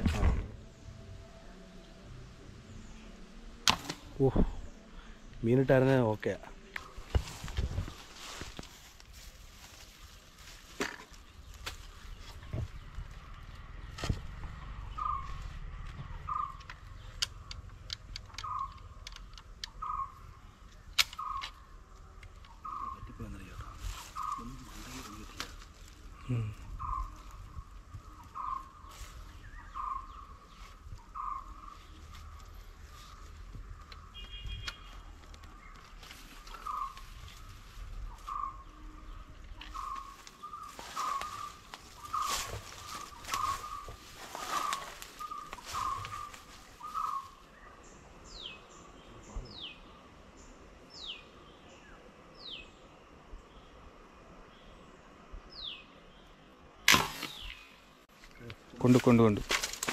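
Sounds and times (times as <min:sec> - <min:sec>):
bird calling: 0:09.6 - 0:53.8, 0:54.5 - 0:59.9
sharp clicks and ticks: 0:15.8 - 0:19.9.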